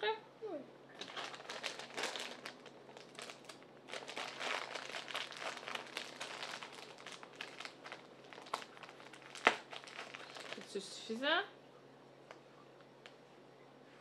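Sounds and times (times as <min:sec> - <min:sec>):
toy stuffing rustling: 0:01.0 - 0:10.8.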